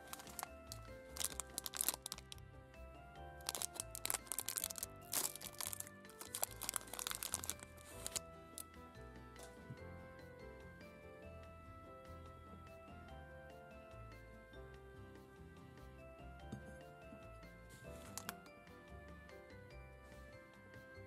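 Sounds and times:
metallic wrapper crinkling: 0:00.0 - 0:02.4, 0:03.4 - 0:08.2, 0:18.0 - 0:18.4
background music: 0:00.0 - 0:21.0.

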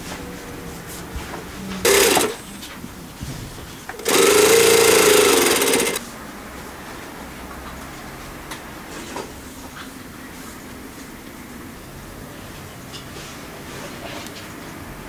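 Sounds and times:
sewing machine stitching: 0:01.8 - 0:02.7, 0:03.9 - 0:06.1.

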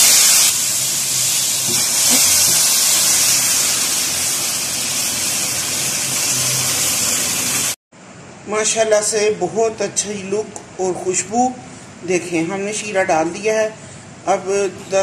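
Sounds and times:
syrup hissing in hot pan: 0:00.0 - 0:07.8.

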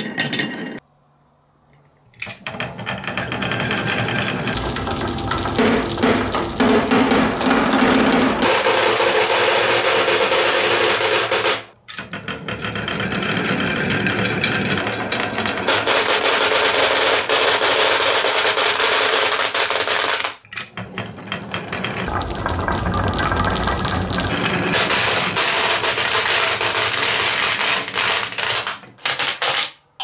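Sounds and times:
marbles clattering down wooden tracks: 0:02.2 - 0:29.8.

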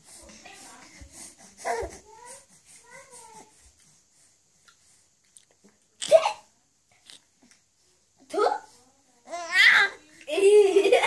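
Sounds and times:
baby cooing: 0:01.6 - 0:03.5.

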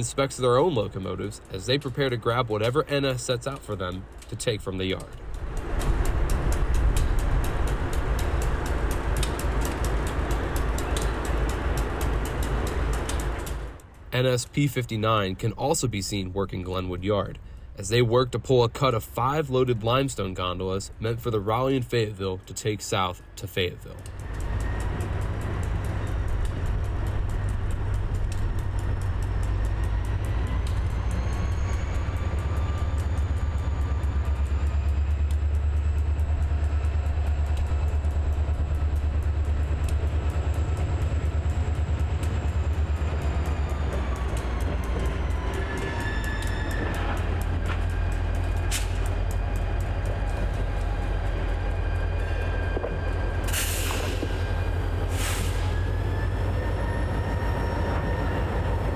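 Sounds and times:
diesel locomotive engine rumbling: 0:00.0 - 0:58.9
high engine whine: 0:00.0 - 0:58.9.

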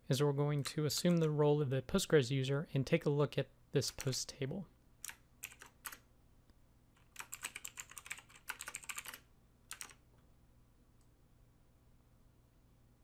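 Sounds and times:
keyboard keys clicking: 0:05.0 - 0:06.0, 0:07.0 - 0:10.0.

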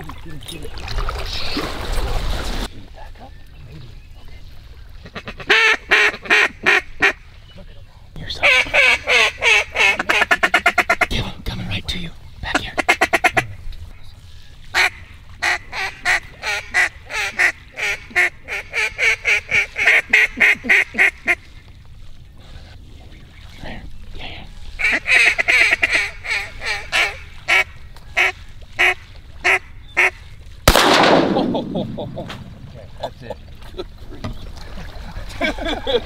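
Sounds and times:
duck call quacks: 0:05.1 - 0:07.2, 0:08.4 - 0:11.1, 0:12.8 - 0:13.5, 0:14.8 - 0:21.4, 0:24.8 - 0:30.2.

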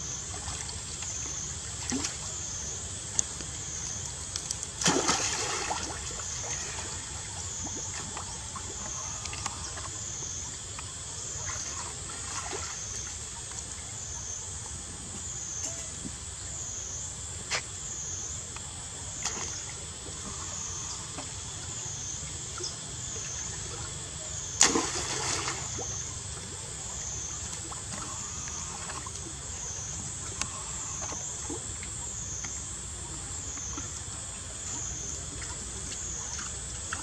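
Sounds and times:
monkeys splashing in water: 0:24.6 - 0:26.0.

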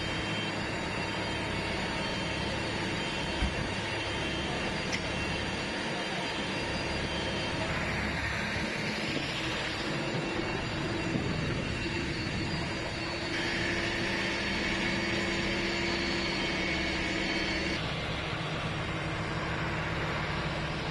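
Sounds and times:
diesel engine and pump droning: 0:00.0 - 0:20.9.

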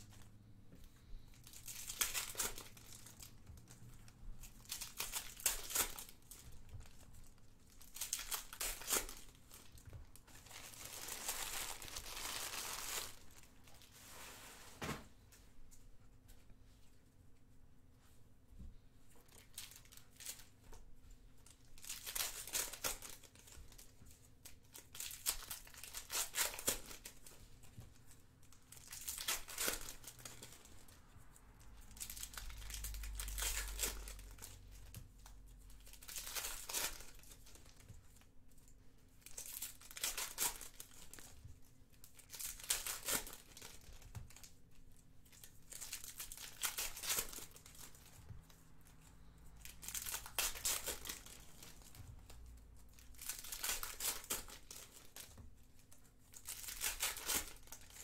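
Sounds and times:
foil wrappers tearing and crinkling: 0:01.4 - 0:03.8, 0:04.6 - 0:13.8, 0:19.3 - 0:20.5, 0:21.7 - 0:27.4, 0:28.5 - 0:30.9, 0:31.8 - 0:37.9, 0:39.2 - 0:41.4, 0:42.0 - 0:44.6, 0:45.2 - 0:48.1, 0:49.6 - 0:58.0.

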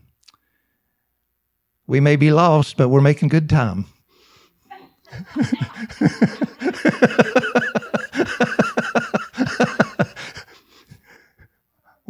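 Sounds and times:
person laughing: 0:05.1 - 0:10.5.

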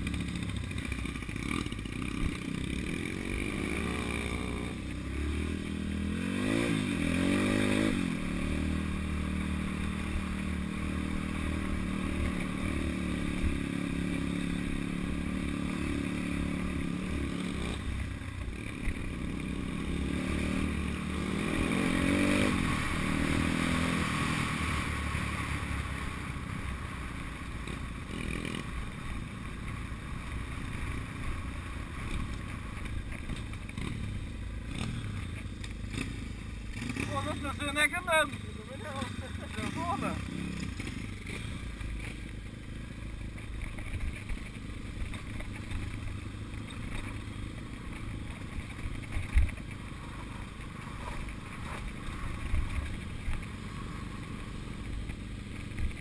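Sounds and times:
motorbike engine revving: 0:00.0 - 0:26.2, 0:27.6 - 0:56.0.

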